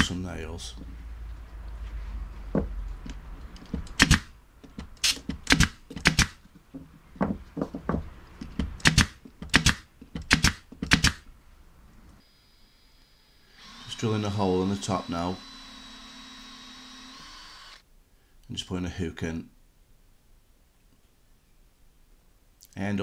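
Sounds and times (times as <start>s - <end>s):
nail gun firing into wood: 3.9s - 4.3s, 5.0s - 6.4s, 8.8s - 11.2s.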